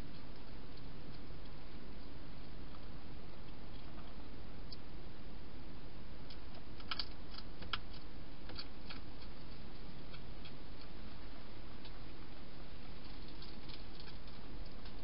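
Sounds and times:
hedgehog crunching food: 6.3 - 12.1, 12.8 - 15.0.

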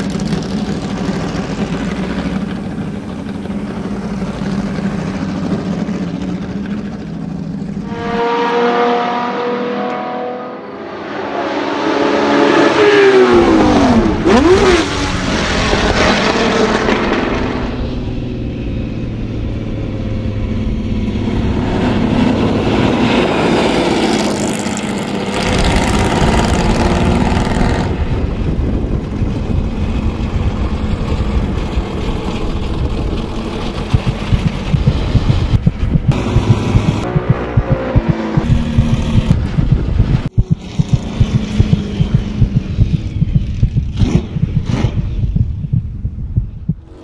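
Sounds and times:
racing car engine passing by: 0.0 - 28.2.

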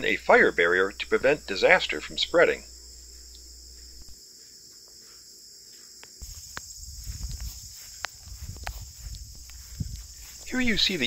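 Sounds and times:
crickets trilling: 0.0 - 11.0
footsteps in debris: 3.0 - 11.0.

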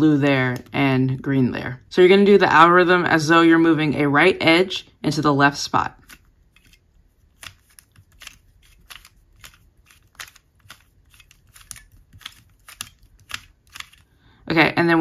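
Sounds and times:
puzzle cube clicks: 6.0 - 14.1.

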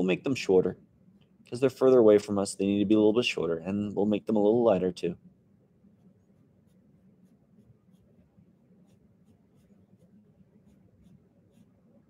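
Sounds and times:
pencil scratching on paper: 6.0 - 8.2, 8.8 - 11.8.

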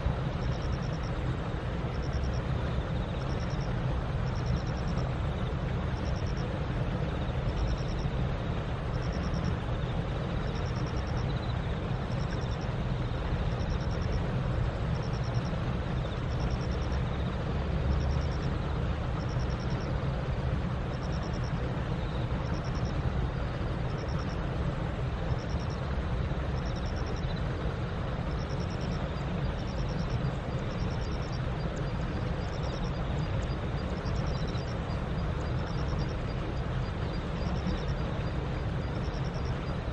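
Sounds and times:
distant road traffic rumble: 0.0 - 39.9
faint high pulsed chirp: 1.9 - 8.2, 8.9 - 14.2, 25.2 - 39.9.

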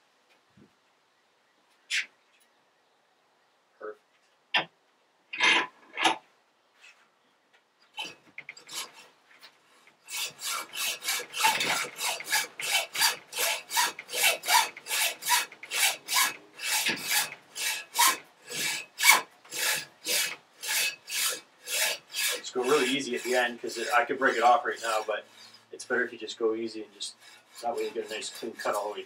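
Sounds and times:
hacksaw cutting metal: 8.0 - 9.1, 10.1 - 29.0.

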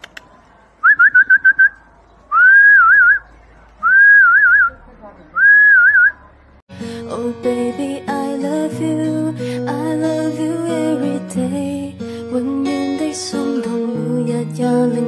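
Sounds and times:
person whistling: 5.4 - 6.1.

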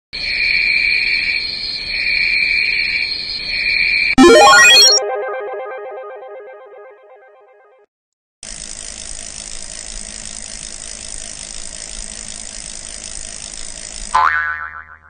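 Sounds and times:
rapid mechanical ratcheting: 8.4 - 14.2.

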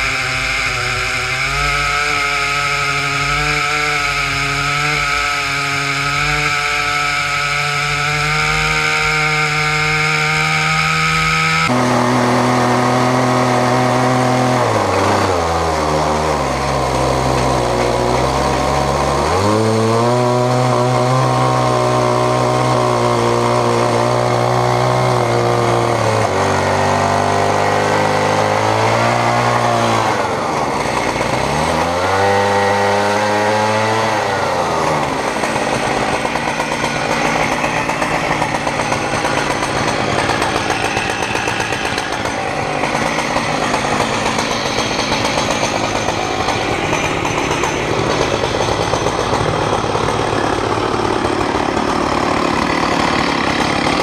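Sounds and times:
chainsaw mill cutting log: 0.0 - 54.0.

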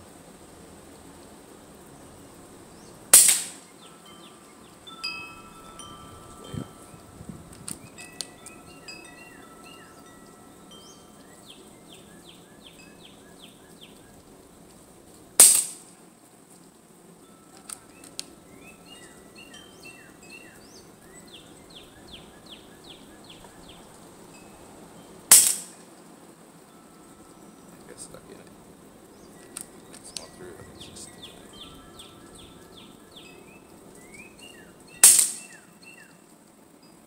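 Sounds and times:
air pistol shots: 3.2 - 3.7, 15.4 - 15.9, 25.3 - 25.7, 35.0 - 35.5.

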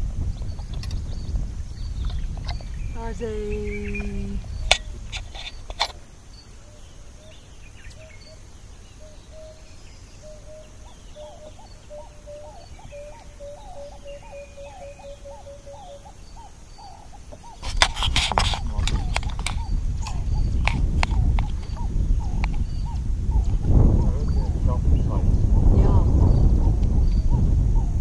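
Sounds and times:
low whistled bird notes: 0.0 - 5.7, 6.3 - 17.7, 18.6 - 28.0
higher bird chirps: 0.0 - 17.6
low background rumble: 0.0 - 17.6, 18.6 - 28.0.

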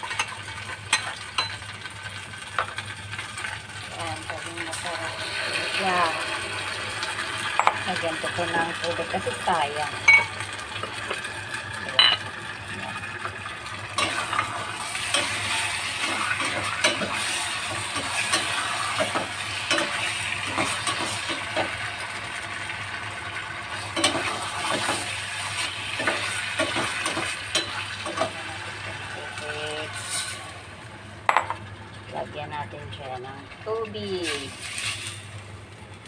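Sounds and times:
food sizzling in a saucepan: 0.0 - 36.0
utensil scraping a pot: 29.5 - 30.6.

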